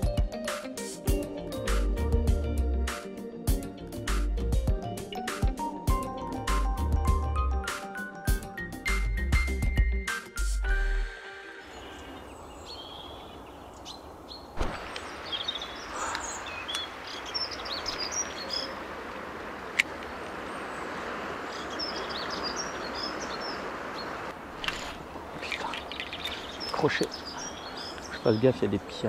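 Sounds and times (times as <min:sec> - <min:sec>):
small birds chirping: 0:11.5 - 0:29.0
mountain river rushing: 0:14.6 - 0:29.0.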